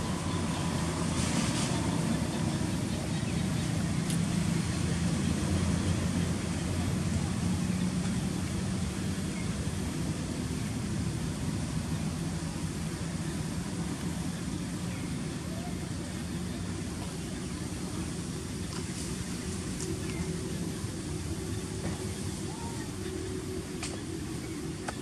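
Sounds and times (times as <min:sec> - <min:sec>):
low motor hum: 0:00.0 - 0:25.0.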